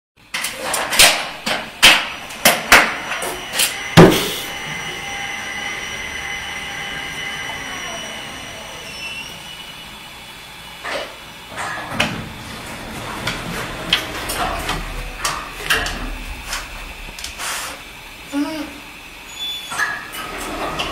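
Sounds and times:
elevator mechanical hum: 0.4s - 20.9s.

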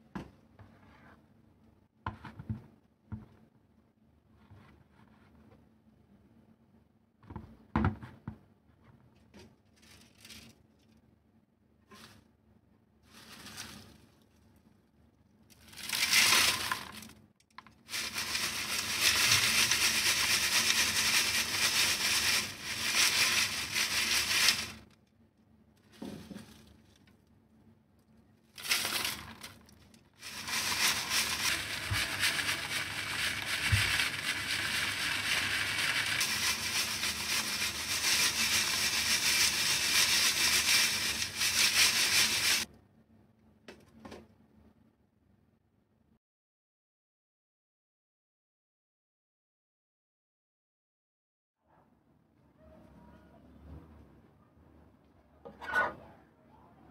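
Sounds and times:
dry leaves rustling in metal sieve: 9.8s - 10.6s, 13.0s - 14.3s, 15.6s - 17.1s, 17.8s - 24.9s, 25.8s - 27.0s, 28.6s - 42.7s.

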